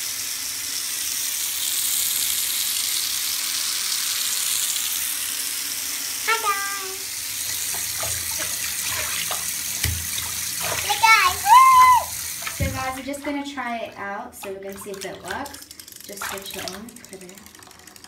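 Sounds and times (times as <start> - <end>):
water running into bathtub: 0.0 - 18.0
high-pitched voice: 6.3 - 7.1, 10.8 - 12.1.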